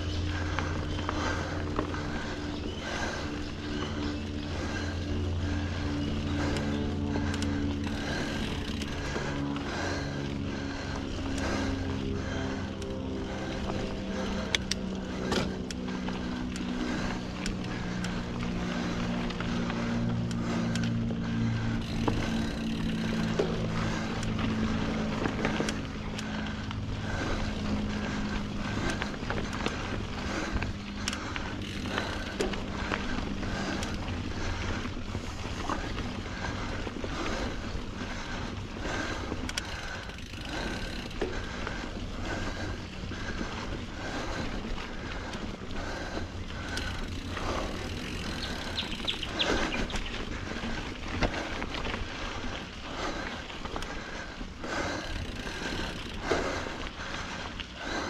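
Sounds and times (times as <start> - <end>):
low steady hum: 0.0 - 58.0
bike knocks and rattles: 14.6 - 34.5, 45.9 - 50.1.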